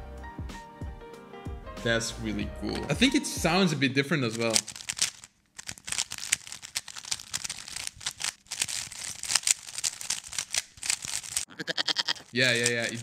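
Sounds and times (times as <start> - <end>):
plastic puzzle cube clicking: 4.3 - 11.5, 12.2 - 13.0.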